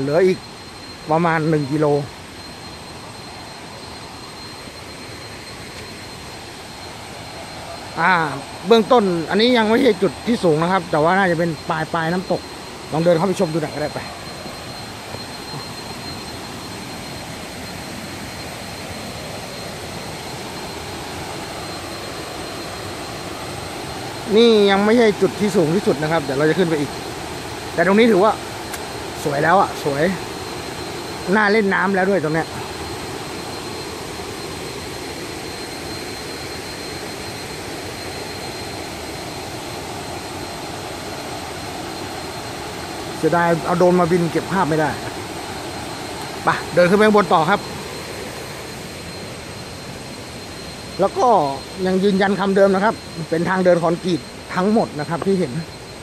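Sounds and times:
waterfall roaring: 19.1 - 55.6.

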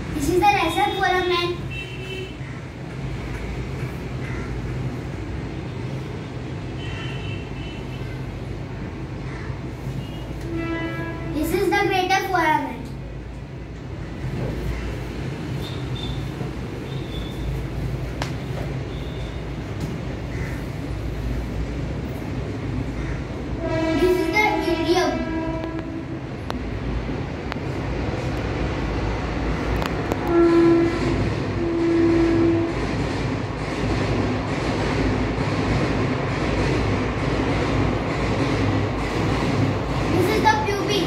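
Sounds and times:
train rumbling past: 0.0 - 41.0
train horn: 10.4 - 11.4, 23.6 - 26.2, 30.1 - 32.8.

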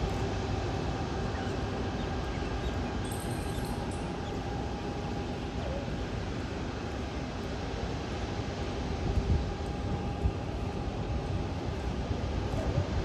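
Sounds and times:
jet engines running: 0.0 - 13.0.

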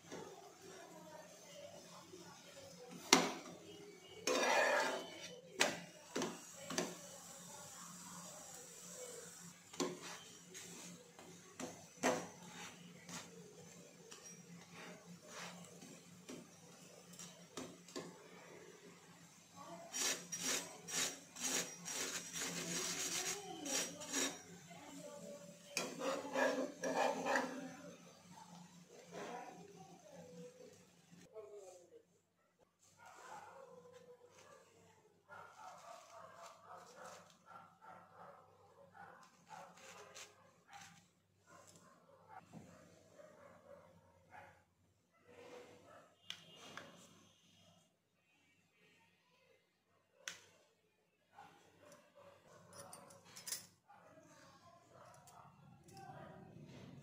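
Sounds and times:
metal spatula scraping a pan: 2.9 - 5.4, 19.9 - 25.0, 25.6 - 27.8.

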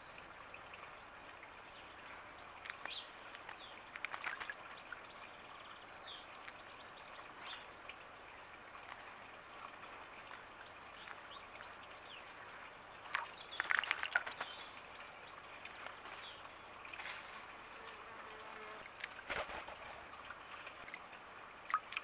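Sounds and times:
bird splashing in water: 2.6 - 5.0, 13.0 - 14.8, 18.6 - 21.0.

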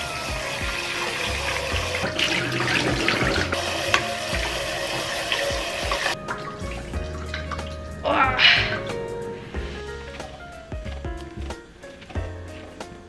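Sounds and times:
faucet water splashing into pot: 0.0 - 8.0.

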